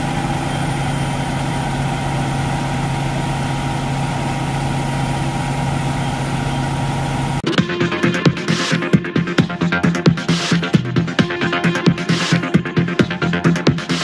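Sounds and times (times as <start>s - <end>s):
diesel engines droning: 0.0s - 14.0s
steady higher hum: 0.0s - 14.0s
electronic music: 7.4s - 14.0s.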